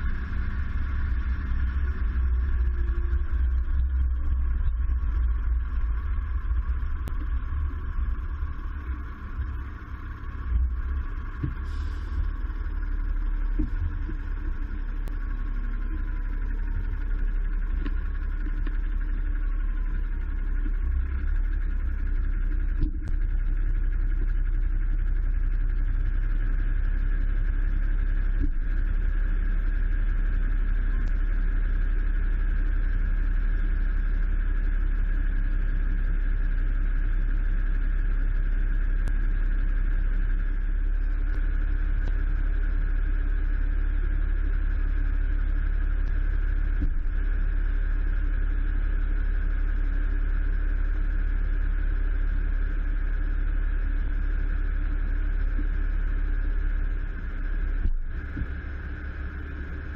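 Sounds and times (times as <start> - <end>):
diesel engine idling: 0.0 - 28.2, 52.4 - 59.9.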